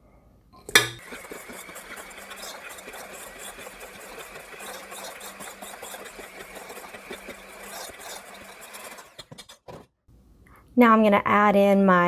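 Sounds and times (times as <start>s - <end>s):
beaters clattering against metal bowl: 0.7s - 9.7s
electric hand mixer hum: 1.0s - 9.2s.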